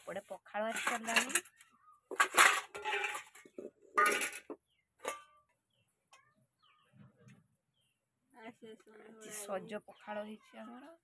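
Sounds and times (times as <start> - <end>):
faint metal scrapes: 0.0 - 5.3
steel bowls clinking: 0.6 - 5.4.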